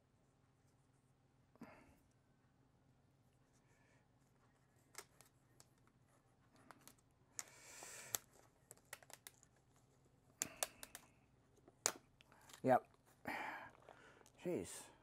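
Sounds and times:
small clicks and taps: 4.9s - 9.6s, 10.4s - 12.6s.

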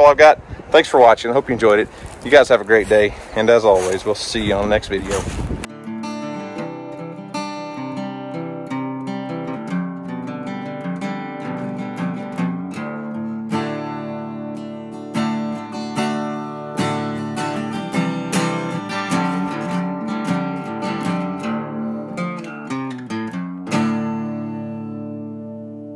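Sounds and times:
acoustic guitar chords: 5.3s - 25.9s.

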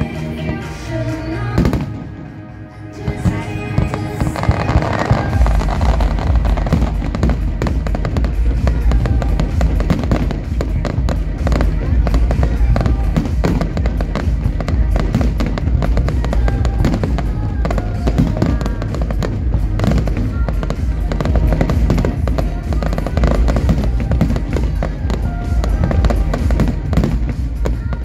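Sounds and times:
fireworks bursting and crackling: 0.0s - 28.0s
music playing: 0.0s - 28.0s
deep booms: 3.1s - 28.0s.

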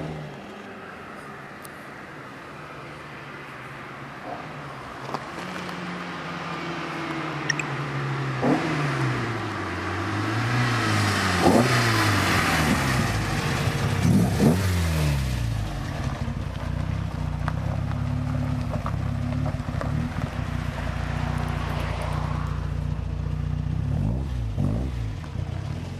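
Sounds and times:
car engine revving: 8.3s - 25.9s.

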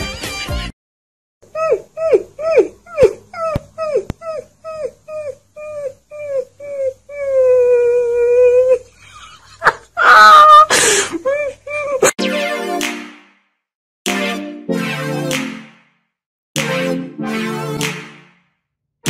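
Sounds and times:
puppy howling: 1.6s - 8.8s, 10.0s - 10.7s.

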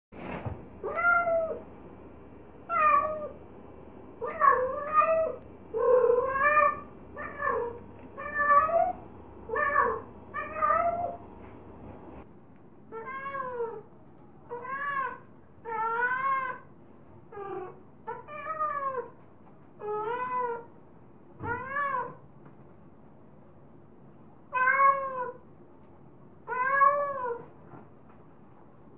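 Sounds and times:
cat meowing drawn-out calls: 0.8s - 1.6s, 4.2s - 11.2s, 12.9s - 13.9s, 14.5s - 16.7s, 19.8s - 20.7s, 21.4s - 22.2s, 24.5s - 25.4s, 26.4s - 27.5s.

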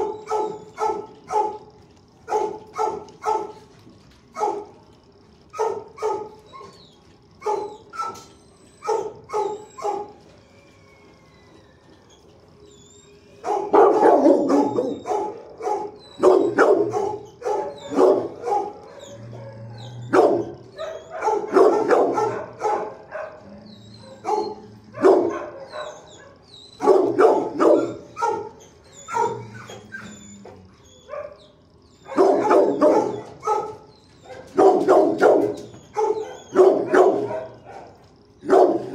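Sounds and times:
dog barking: 0.0s - 3.6s, 5.6s - 6.4s, 7.4s - 10.2s, 13.4s - 29.5s, 31.1s - 31.4s, 32.1s - 38.9s.

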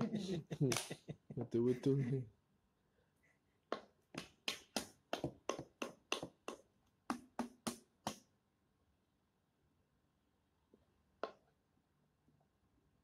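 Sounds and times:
sharp taps: 3.7s - 8.2s.

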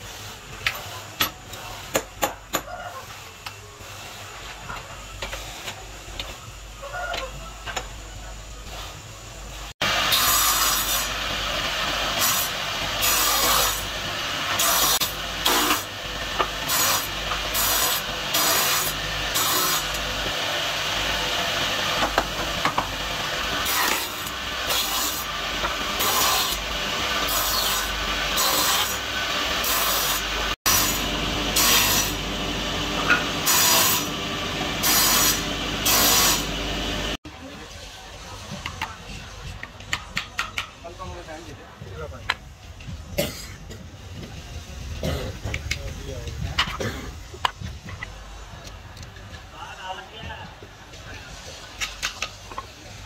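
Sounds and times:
bench power tool humming: 9.8s - 37.2s.

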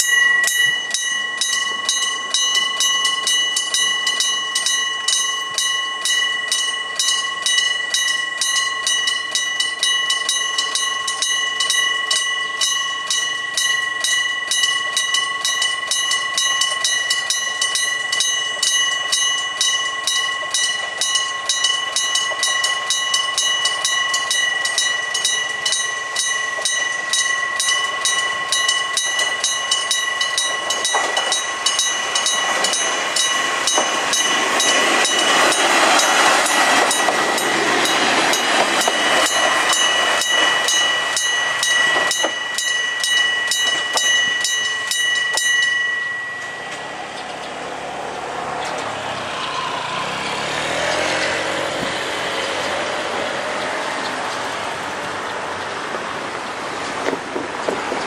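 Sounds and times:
level crossing bell ringing: 0.0s - 48.0s
diesel railcar approaching: 0.0s - 58.0s.

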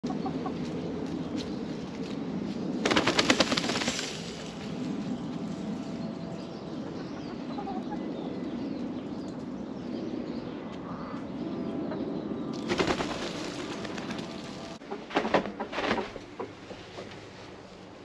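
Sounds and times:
chicken wings flapping: 2.8s - 4.8s, 12.6s - 17.2s.

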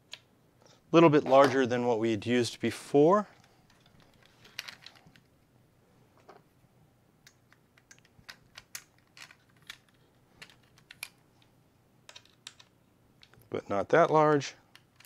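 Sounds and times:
plastic and hardware clicks and rattles: 3.3s - 5.3s, 7.3s - 11.2s, 14.7s - 15.0s.

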